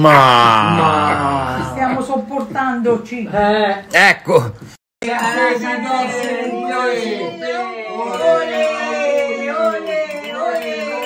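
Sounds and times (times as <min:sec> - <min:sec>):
voices singing together: 0:05.0 - 0:11.0.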